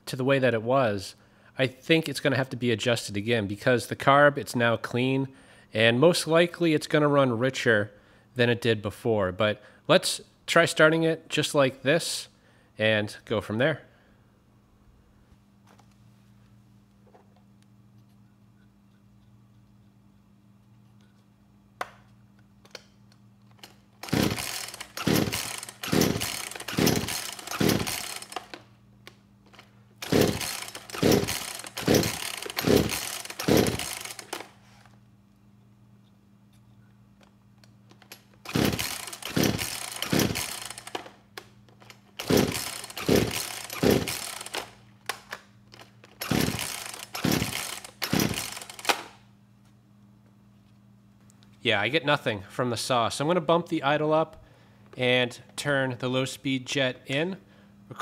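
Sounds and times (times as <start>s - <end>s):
chainsaw starter cord pulls: 23.5s - 28.7s, 29.5s - 34.6s, 37.9s - 49.2s
engine turning over: 24.0s - 28.6s, 29.5s - 34.6s, 38.4s - 41.1s, 42.2s - 44.8s, 46.1s - 49.1s.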